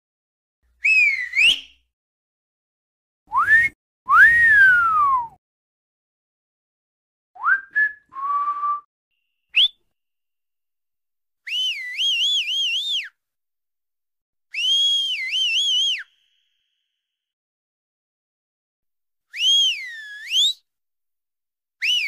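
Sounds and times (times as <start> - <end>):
person whistling: 0.8 - 1.9, 3.3 - 5.4, 7.4 - 8.9, 9.5 - 9.8, 11.5 - 13.2, 14.5 - 16.6, 19.3 - 20.6, 21.8 - 22.0.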